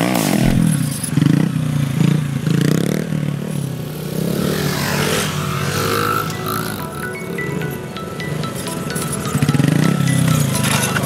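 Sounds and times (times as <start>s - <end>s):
mini bike engine revving: 0.0s - 7.0s.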